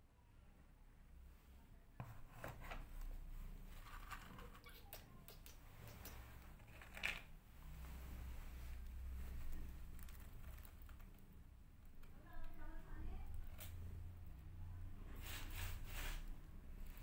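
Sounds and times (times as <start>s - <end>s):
dry kibble rustling and clicking: 3.8s - 7.3s, 9.4s - 12.6s.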